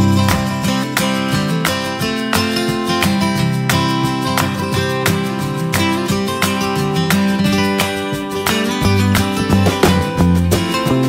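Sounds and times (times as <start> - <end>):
strummed acoustic guitar: 0.0 - 11.0.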